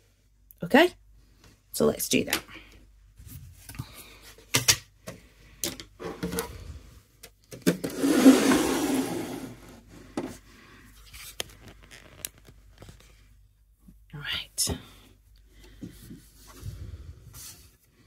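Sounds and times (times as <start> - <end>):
loud rubbing rustle: 7.9 - 9.7.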